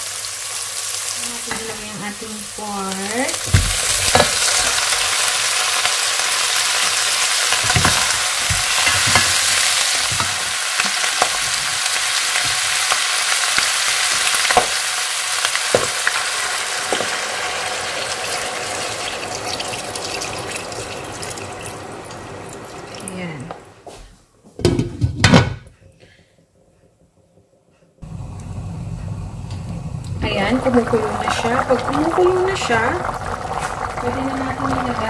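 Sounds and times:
meat sizzling in hot oil: 0.0s - 23.4s, 29.2s - 35.0s
stirring knocks in pot: 7.6s - 9.4s.

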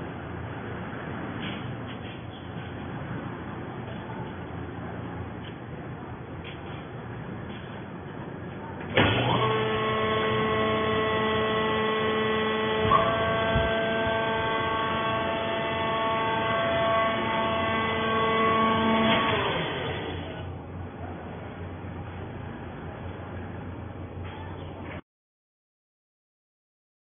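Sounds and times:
hydraulic pump motor humming: 8.9s - 20.6s.

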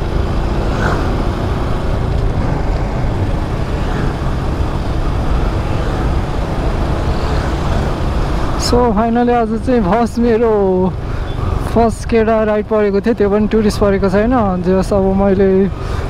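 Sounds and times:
motorcycle engine running: 0.0s - 12.5s
wind rumbling on microphone: 0.0s - 12.6s.

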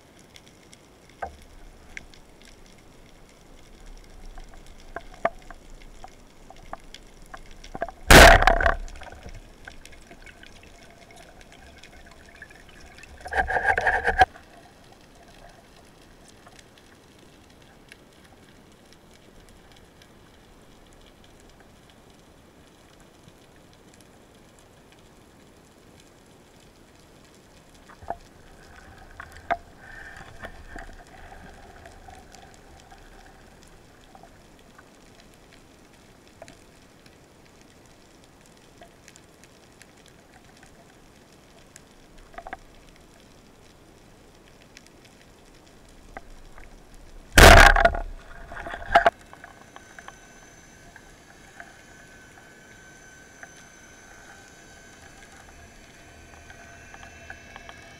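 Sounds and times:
faint steady whine: 0.0s - 57.9s
faint underwater crackle: 0.0s - 57.9s
sharp underwater clicks: 0.3s - 17.0s, 45.6s - 57.9s.

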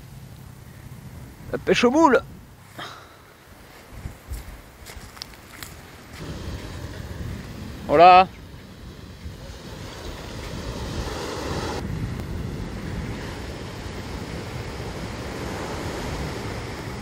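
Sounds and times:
wind blowing across microphone: 0.0s - 17.0s
ocean surf breaking on beach: 5.9s - 17.0s.

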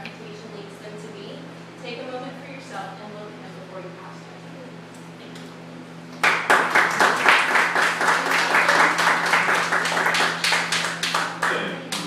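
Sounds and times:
audience applause: 6.2s - 12.0s.

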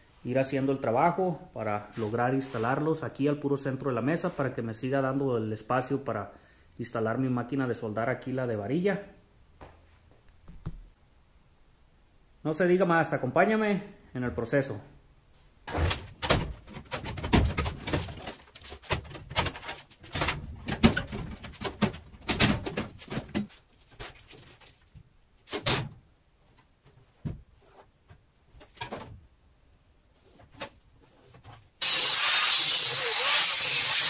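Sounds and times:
angle grinder cutting sheet steel: 31.8s - 34.0s.

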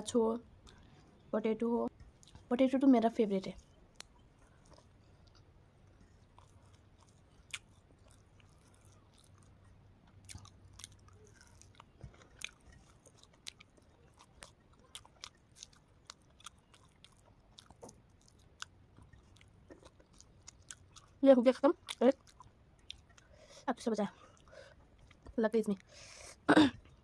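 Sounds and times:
person chewing food: 0.5s - 1.3s, 1.9s - 2.5s, 3.6s - 27.0s.

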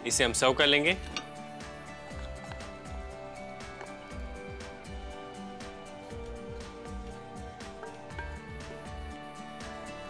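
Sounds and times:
background music with low drum beat: 0.0s - 10.0s.

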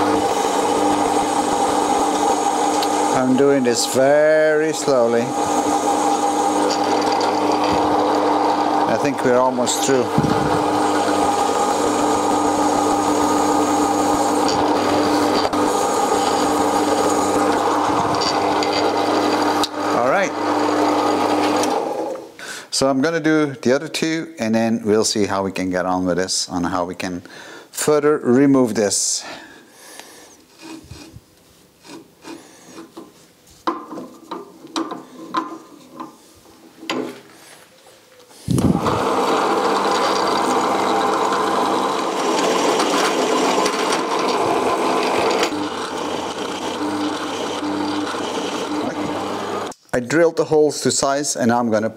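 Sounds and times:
drill bit scraping steel: 0.0s - 22.0s, 30.5s - 31.2s, 38.5s - 49.8s
drill press motor hum: 0.0s - 22.3s, 38.5s - 49.8s
metal scrapes and clicks: 18.0s - 19.8s.

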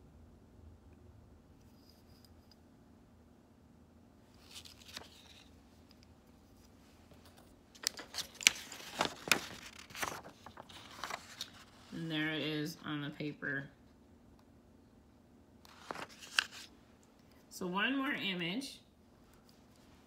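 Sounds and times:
faint room hum: 0.0s - 20.0s
paper rustling and clicking: 4.4s - 6.0s, 7.2s - 11.8s, 15.7s - 16.7s.

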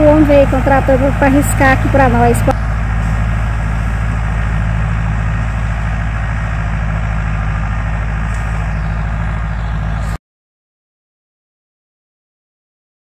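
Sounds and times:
tractor engine running under load: 0.0s - 10.2s.

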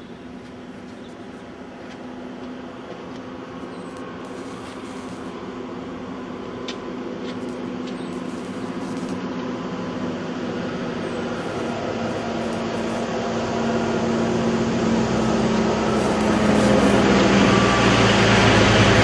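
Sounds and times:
vehicle engine humming: 0.0s - 19.0s
hiss: 4.3s - 5.4s, 15.2s - 17.4s.

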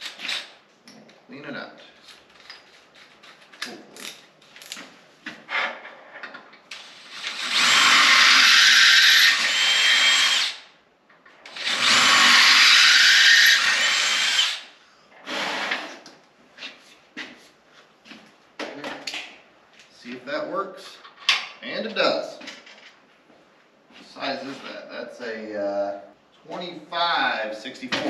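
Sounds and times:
cordless drill drilling: 6.8s - 10.7s, 11.5s - 14.7s, 15.3s - 15.9s.

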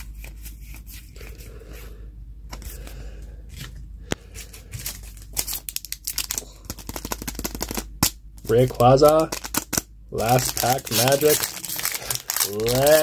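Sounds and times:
foil pack crinkling: 4.7s - 13.0s.

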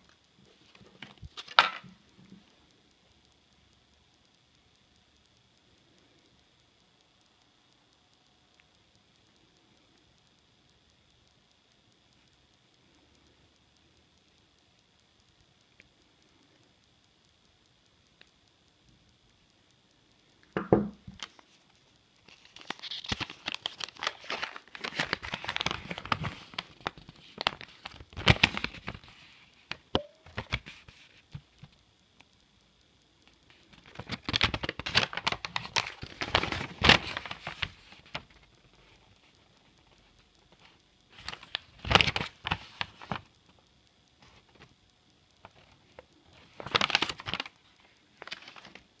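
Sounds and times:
paper crinkling and rustling: 22.3s - 29.1s, 33.9s - 38.3s, 41.2s - 43.3s, 46.4s - 47.6s, 48.2s - 48.8s.

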